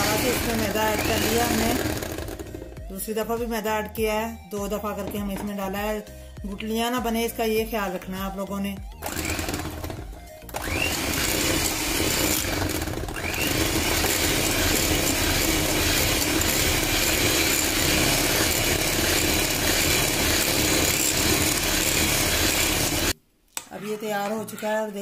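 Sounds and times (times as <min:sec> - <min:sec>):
electric hand mixer whining: 0:00.0 - 0:02.9, 0:09.0 - 0:23.2.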